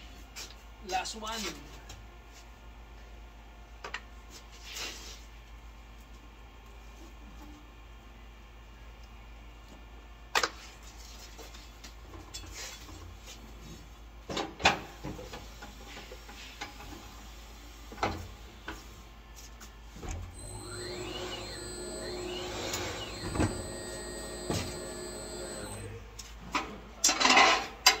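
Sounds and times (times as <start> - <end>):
turntable motor whine: 20.3 - 26.0.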